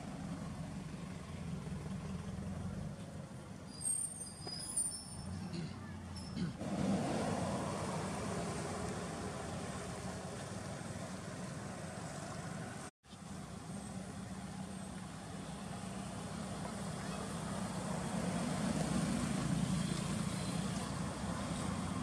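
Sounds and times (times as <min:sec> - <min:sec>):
vehicle engine rumble: 0:00.0 - 0:22.0.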